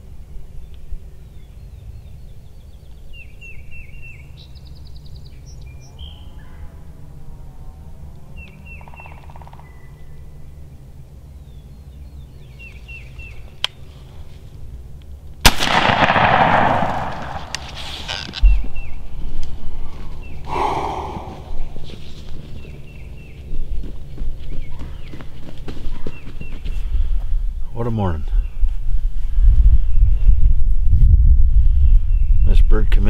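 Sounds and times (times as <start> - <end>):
loud shotgun blast: 15.4 - 17.8
short high bird calls: 20.2 - 21.8.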